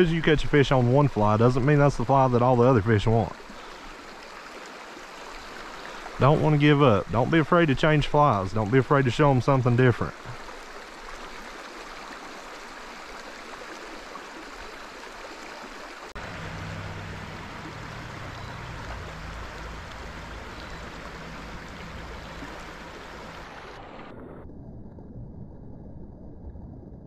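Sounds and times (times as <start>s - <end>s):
stream water running: 0.0s - 24.3s
low rumble: 16.2s - 27.0s.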